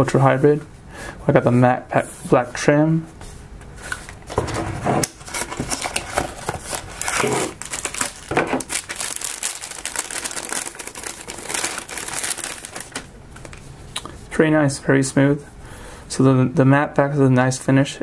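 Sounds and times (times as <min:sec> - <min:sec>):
cardboard box rustling: 0:04.3 - 0:13.1
plastic bag crinkling: 0:04.3 - 0:13.7.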